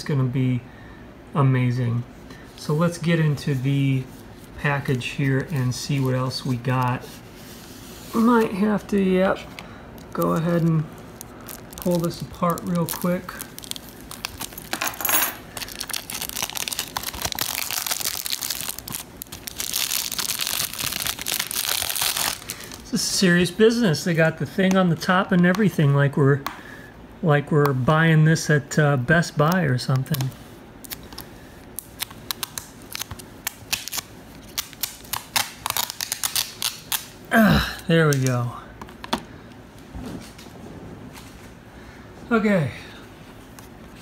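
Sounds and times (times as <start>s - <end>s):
plastic shrink-wrap crinkling and tearing: 10.0s - 14.8s, 15.5s - 23.0s, 30.0s - 37.2s.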